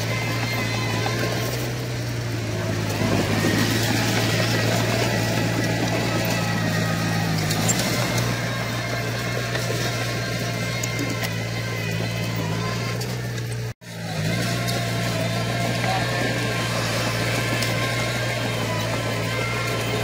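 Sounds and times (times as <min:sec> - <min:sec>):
bulldozer diesel engine droning: 0:00.0 - 0:20.0.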